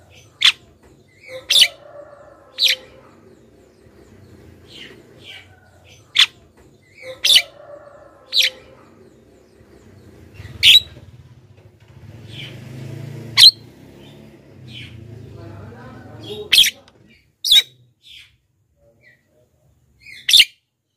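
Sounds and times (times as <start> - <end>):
bird chattering: 0.0 - 11.0, 16.1 - 18.3, 20.0 - 20.6.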